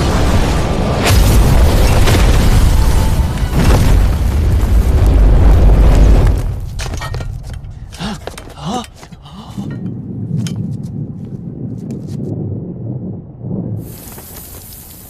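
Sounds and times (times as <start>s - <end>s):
deep rumbling explosion blast: 0.0s - 6.7s.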